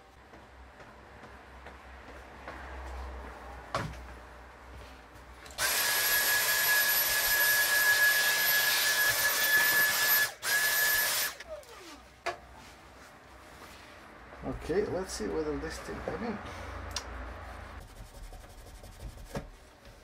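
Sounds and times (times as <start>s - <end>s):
handheld vacuum cleaner whining: 5.6s - 11.8s.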